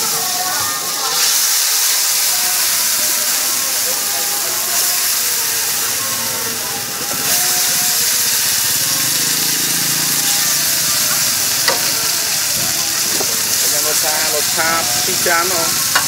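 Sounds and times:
noodles sizzling in a wok: 0.0 - 16.0
metal clank: 11.7 - 12.0.

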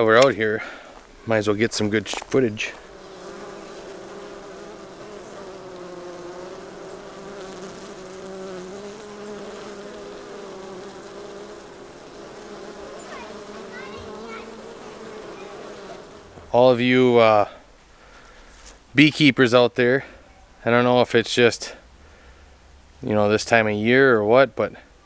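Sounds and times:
honey bees buzzing: 2.6 - 17.1.

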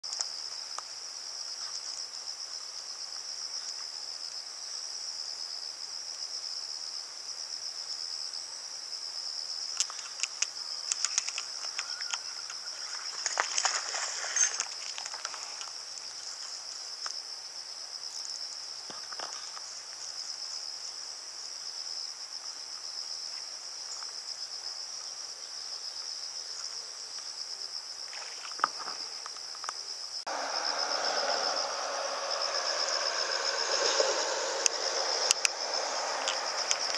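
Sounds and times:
insect chorus trilling: 0.0 - 36.9
fish splashing: 13.0 - 15.3.

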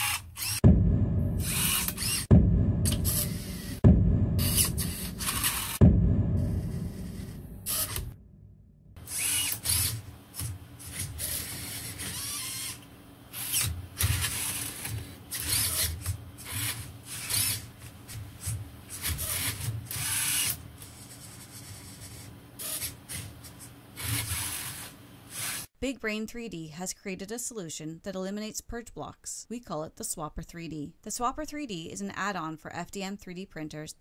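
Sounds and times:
mechanical rubbing: 1.3 - 8.2, 9.0 - 17.7.

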